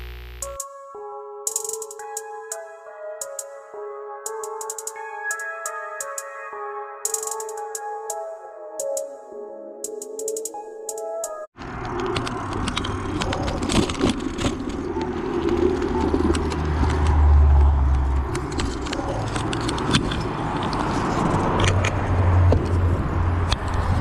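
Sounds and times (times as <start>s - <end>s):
camera and bike rattling: 11.6s - 24.0s.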